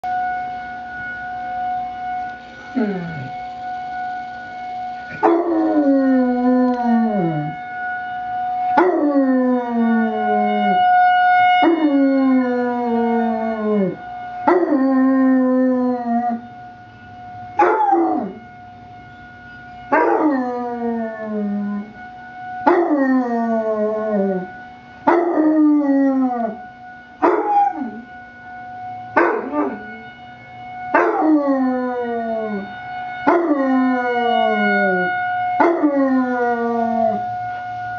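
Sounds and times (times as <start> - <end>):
emergency warning siren: 0.0 - 37.9.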